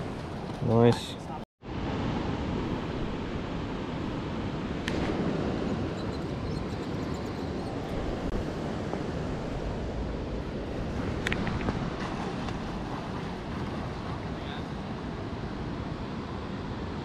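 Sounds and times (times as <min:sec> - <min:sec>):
river water rushing: 0:04.9 - 0:17.0.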